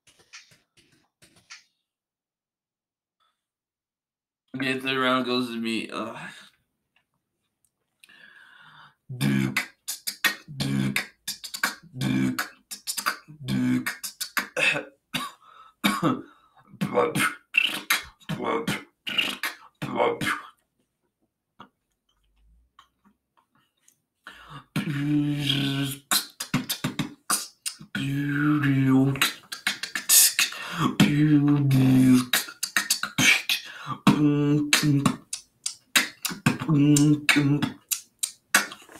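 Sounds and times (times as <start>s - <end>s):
person beatboxing: 9.1s - 16.2s, 16.8s - 20.6s, 24.4s - 38.9s.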